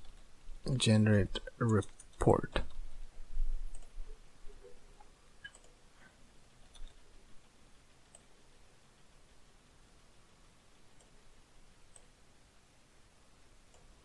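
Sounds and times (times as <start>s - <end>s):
computer mouse clicks: 3.7s - 4.0s, 5.0s - 5.8s, 6.6s - 8.3s, 10.9s - 11.2s.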